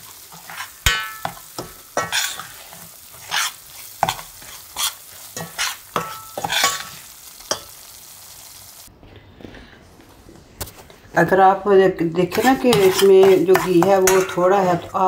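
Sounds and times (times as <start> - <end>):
utensil scraping metal pan: 0.0 - 7.6, 12.2 - 15.0
faint sizzle of frying: 0.0 - 15.0.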